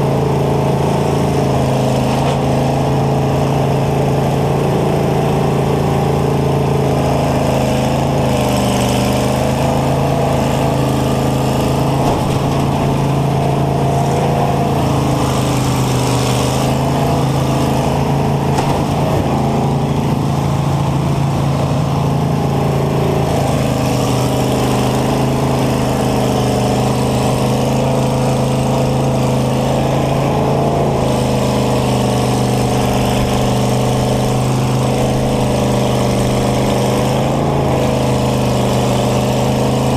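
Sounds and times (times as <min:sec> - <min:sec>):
combine harvester engine droning: 0:00.0 - 0:39.9.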